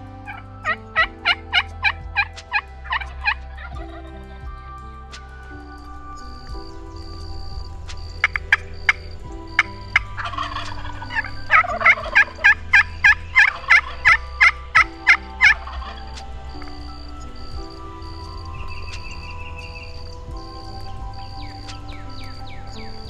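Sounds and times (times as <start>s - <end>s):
faint background music: 0.0s - 23.0s
turkey gobbling: 9.6s - 16.0s.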